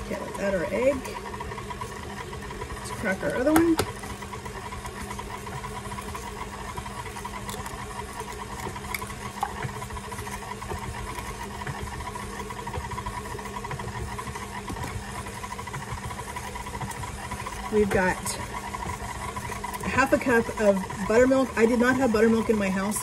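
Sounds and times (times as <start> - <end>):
stand mixer motor hum: 0.0 - 23.0.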